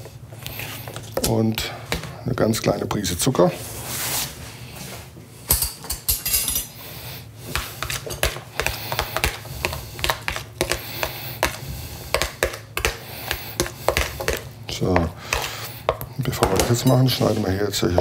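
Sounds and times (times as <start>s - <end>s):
metal spoon scraping plastic tub: 7.5s - 18.0s.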